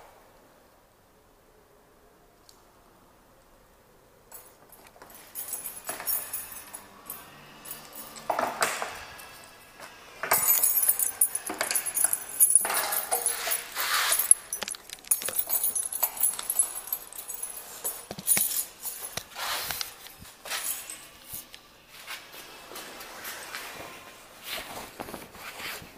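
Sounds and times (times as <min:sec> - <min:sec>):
gear rustling: 0:04.3 - 0:08.6, 0:10.2 - 0:22.2
keys jangling: 0:04.3 - 0:21.7.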